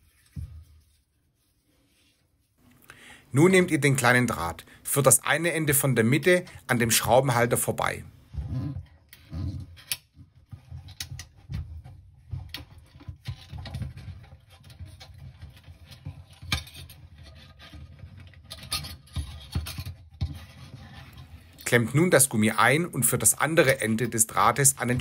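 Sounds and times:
fingers scraping and tapping plastic: 8.8 - 21.6.

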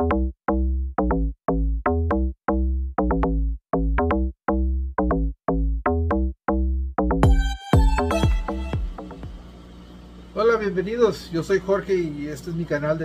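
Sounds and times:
electronic music drum-machine beat: 7.0 - 9.6.

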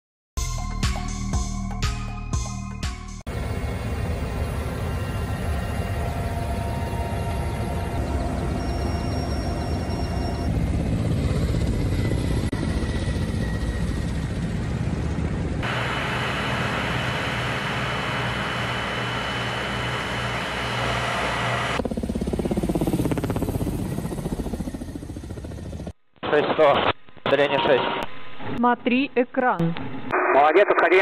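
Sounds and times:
helicopter passing overhead: 3.3 - 26.0
helicopter turbine and rotor noise: 3.3 - 26.0.

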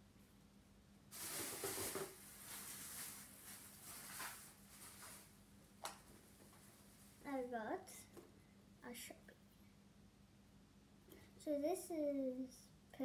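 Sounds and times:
rustling and handling noises: 1.1 - 8.4.

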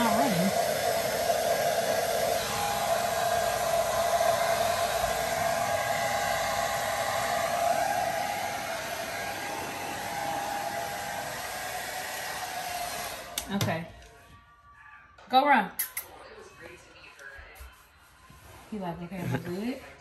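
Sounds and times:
hair dryer blowing: 0.0 - 13.9.

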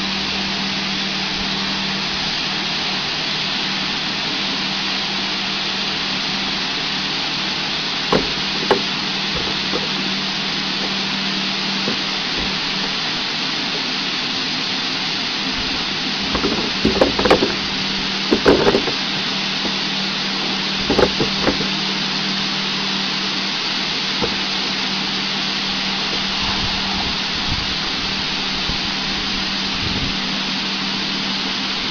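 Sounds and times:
low machine hum: 0.0 - 31.9
water hissing from spray bars: 0.0 - 31.9
loud knocks: 8.1 - 10.1, 16.1 - 19.8, 20.4 - 21.7, 24.2 - 24.5.

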